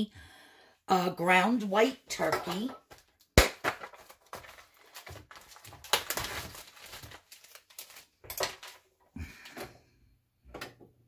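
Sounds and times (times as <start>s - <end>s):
plastic packaging crinkling: 2.9s - 9.0s.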